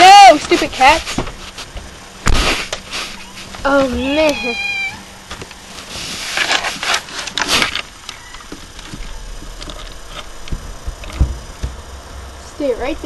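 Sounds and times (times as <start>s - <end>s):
laptop handling rustling and scraping: 0.4s - 3.8s, 5.3s - 8.0s.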